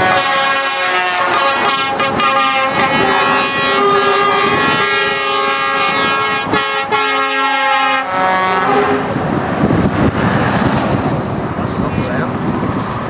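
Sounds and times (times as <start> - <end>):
truck air horns chord: 0.0 - 9.1
passing lorries rushing: 0.0 - 13.0.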